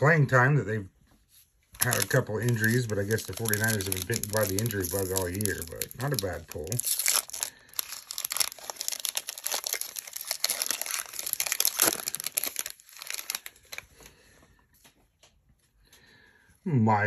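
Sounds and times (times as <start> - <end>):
foil wrapper crinkling: 1.7 - 14.2.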